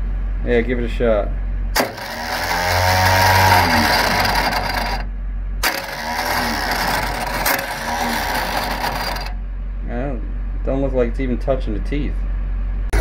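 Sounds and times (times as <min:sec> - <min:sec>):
starter motor whirring and rattling: 0:01.7 - 0:09.5.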